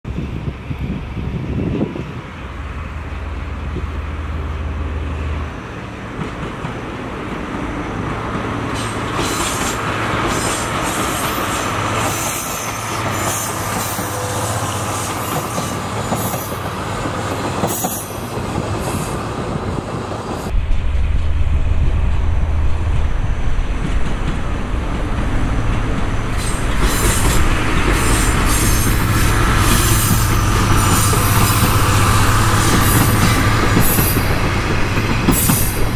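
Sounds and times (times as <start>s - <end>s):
locomotive engine drone: 18.2s - 35.9s
wheels clacking over rail joints: 23.1s - 35.9s.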